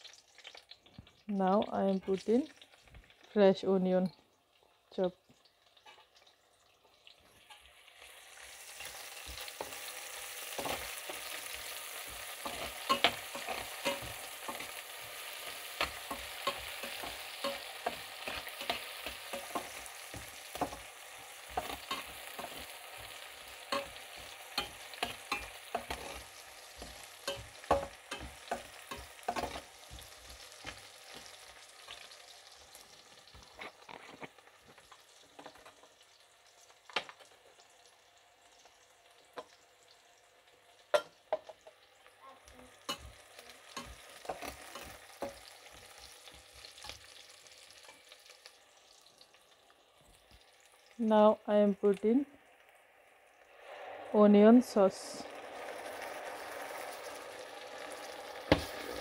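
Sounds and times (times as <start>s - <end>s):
onion sizzling in frying pan: 0.0s - 59.0s
metal spatula scraping pan: 8.8s - 32.1s.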